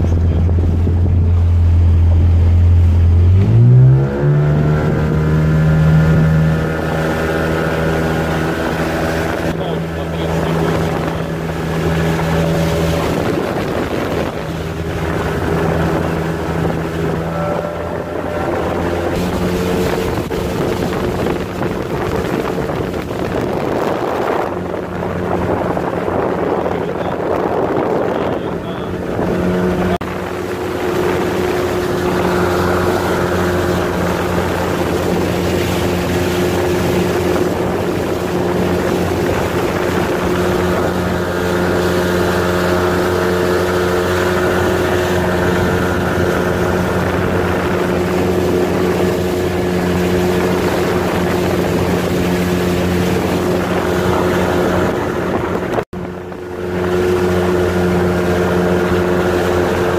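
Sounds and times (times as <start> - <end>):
motorboat engine running: 0.0 - 59.9
wind noise on microphone: 0.0 - 59.9.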